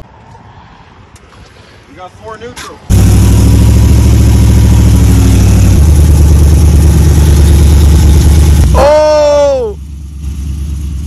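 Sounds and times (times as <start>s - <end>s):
loud truck engine running: 2.9s - 11.0s.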